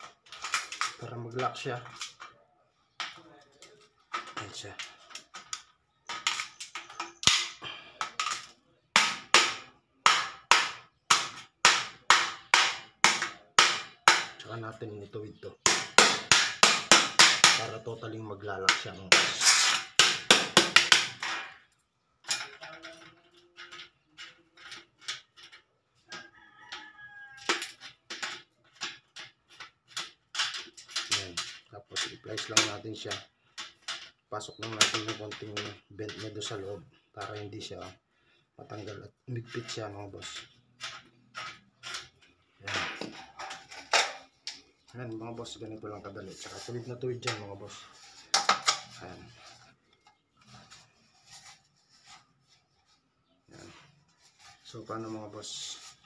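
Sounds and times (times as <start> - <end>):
metallic clicks and scrapes: 19.3 - 20.0, 21.1 - 38.0, 38.6 - 56.0.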